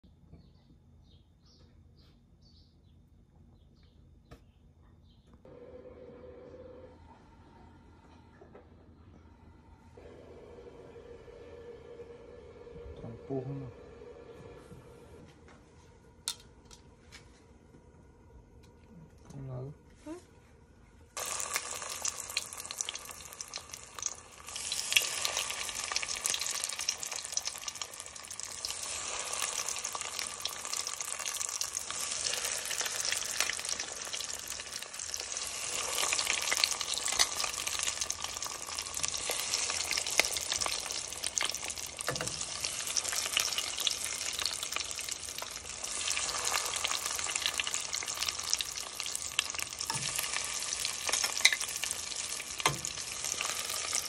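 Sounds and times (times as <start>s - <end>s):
food sizzling in hot oil: 21.2s - 54.0s.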